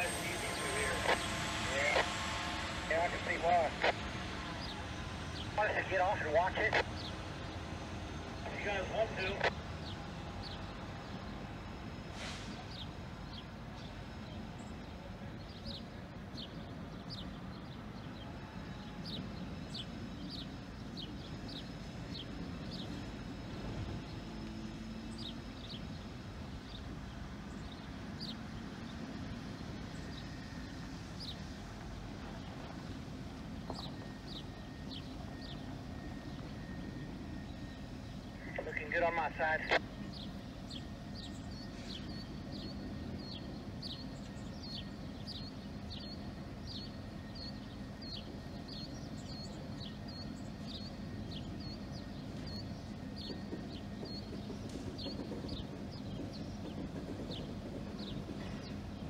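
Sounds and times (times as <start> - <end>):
diesel locomotive rumbling: 0.0 - 59.0
small birds chirping: 12.6 - 59.0.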